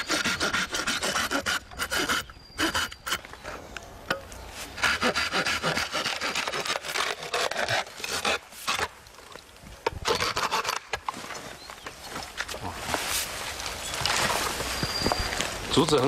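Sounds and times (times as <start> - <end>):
hand saw cutting bamboo: 0.0 - 3.2, 4.8 - 8.9, 10.1 - 10.9.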